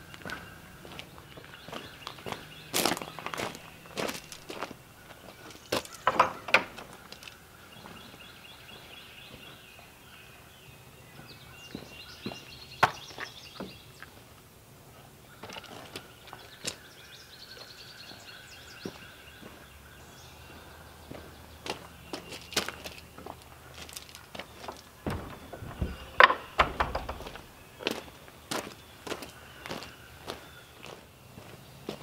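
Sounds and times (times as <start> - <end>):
songbirds chirping: 0.0 - 32.0
wooden shed door opening: 5.8 - 7.2, 22.7 - 28.0
chainsaws set down on wood: 22.6 - 27.6.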